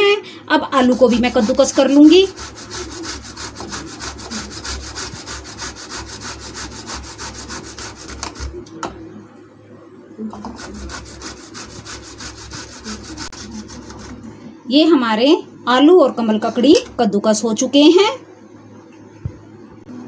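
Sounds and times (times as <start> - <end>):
potato grating on metal grater: 0.8 - 8.6, 10.4 - 14.2.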